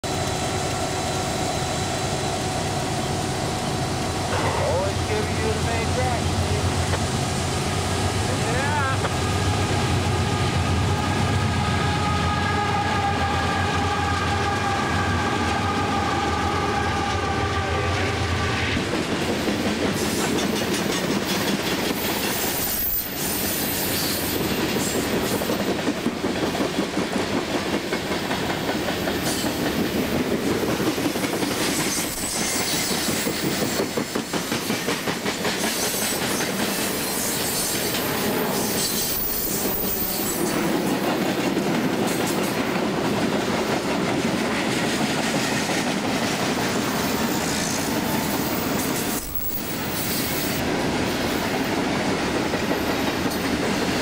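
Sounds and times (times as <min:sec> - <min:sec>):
diesel locomotive engine rumble: 0:00.0 - 0:54.0
train wheel noise: 0:00.0 - 0:54.0
clickety-clack over rail joints: 0:04.3 - 0:07.2, 0:08.4 - 0:09.2, 0:18.7 - 0:54.0
train air horn blast: 0:08.9 - 0:18.8.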